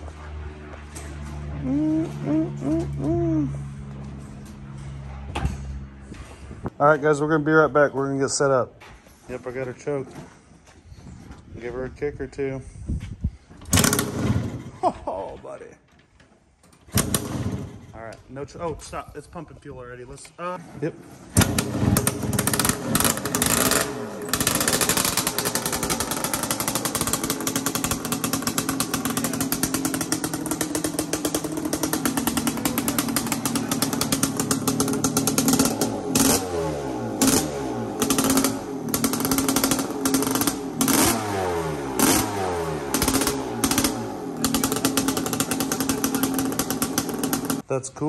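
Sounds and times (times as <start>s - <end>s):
engine revving in throttle blips: 0.0s - 6.7s, 21.4s - 47.6s
two-stroke engine idling unevenly: 21.4s - 47.6s.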